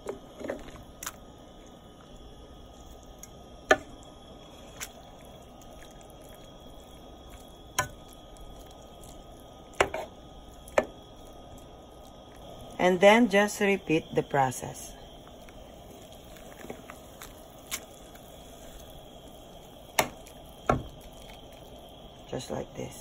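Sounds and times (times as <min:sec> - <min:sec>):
wet squishing and dripping: 0:00.5 - 0:12.8, 0:15.0 - 0:22.3.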